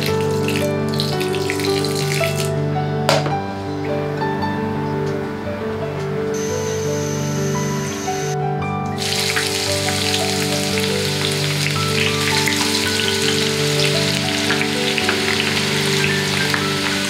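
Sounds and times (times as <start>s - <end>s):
hot oil sizzling in a frying pan: 0.0s - 2.4s, 9.0s - 17.0s
soft background music: 0.0s - 17.0s.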